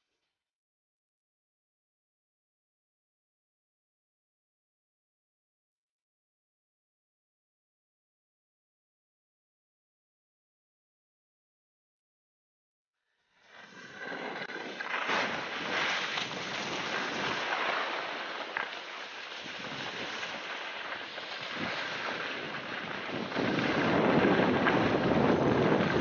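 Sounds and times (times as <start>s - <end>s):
skis scraping over snow: 13.4s - 26.0s
wind buffeting microphone: 13.9s - 26.0s.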